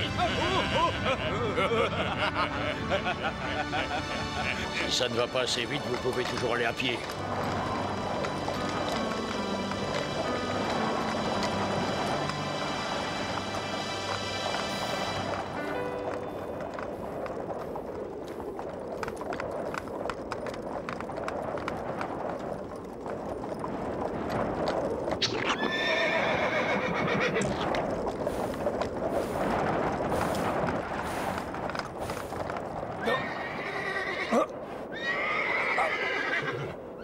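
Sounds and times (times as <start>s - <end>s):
horse hooves clip-clopping: 0.0s - 37.0s
horse whinnying: 25.2s - 27.8s, 33.0s - 37.0s.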